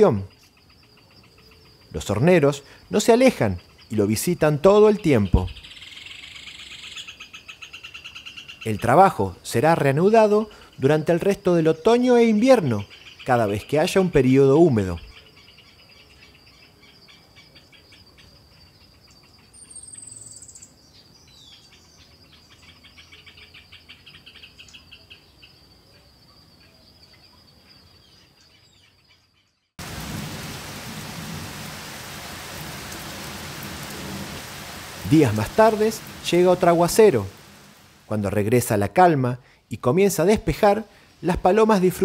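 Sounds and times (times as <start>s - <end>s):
high insect trill: 0.0s - 42.0s
bird chirping: 3.4s - 8.9s, 10.0s - 29.8s
heavy rain falling: 29.8s - 38.2s.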